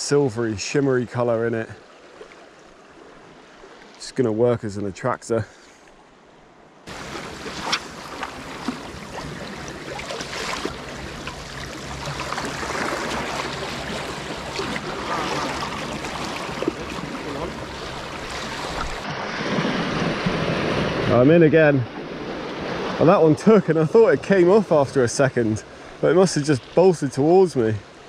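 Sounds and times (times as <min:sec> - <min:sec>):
small splashes: 0:06.9 - 0:20.4
sea water washing on shore: 0:06.9 - 0:28.0.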